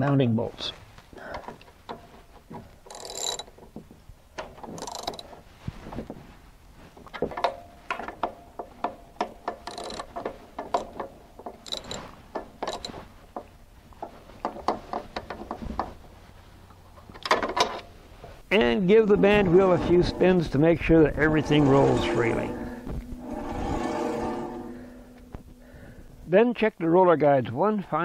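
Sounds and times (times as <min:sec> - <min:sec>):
ratcheting wrench clicking: 0:02.9 - 0:03.6, 0:04.4 - 0:05.3, 0:08.8 - 0:13.0.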